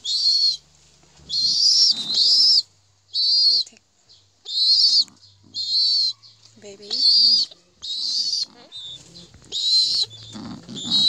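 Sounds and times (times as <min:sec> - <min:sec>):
pigeon squabs peeping: 0:00.0 - 0:00.6, 0:01.2 - 0:03.8, 0:04.4 - 0:11.0.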